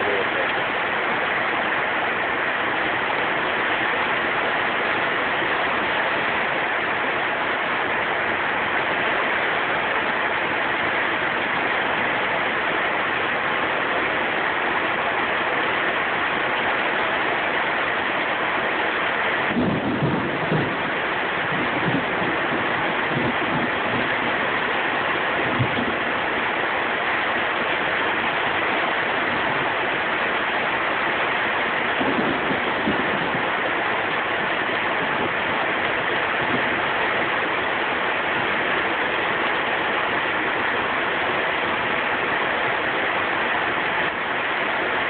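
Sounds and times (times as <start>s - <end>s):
heavy rain downpour: 0.0s - 45.0s
low thunder rumbles: 19.5s - 24.4s.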